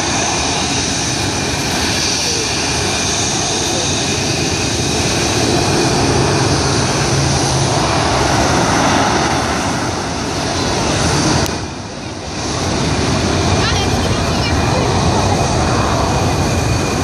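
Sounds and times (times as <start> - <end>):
jet engines whining: 0.0 - 17.0.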